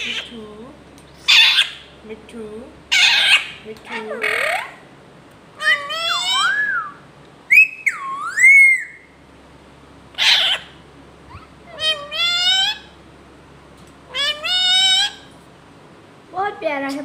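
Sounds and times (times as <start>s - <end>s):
parakeet whistled calls: 1.3s - 1.9s, 2.9s - 3.6s, 5.6s - 9.2s, 10.2s - 12.9s, 14.1s - 15.3s.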